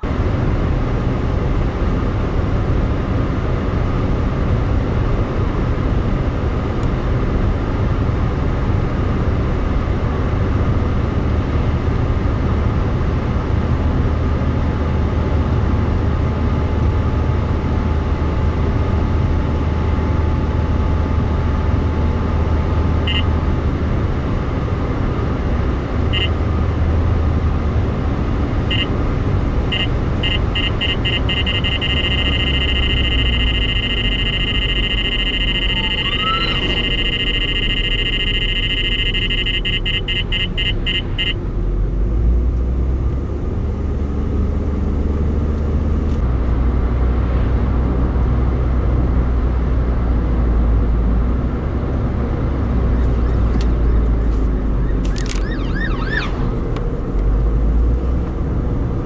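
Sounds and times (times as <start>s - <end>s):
car road and engine drone: 0.0s - 59.0s
short high beeps: 29.7s - 41.3s.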